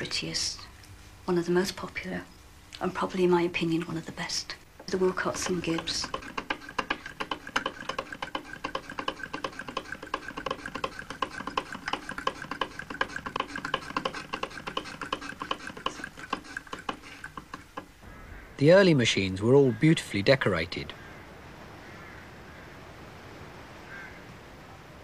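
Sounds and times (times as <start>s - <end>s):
sewing machine running: 5.3s - 17.5s.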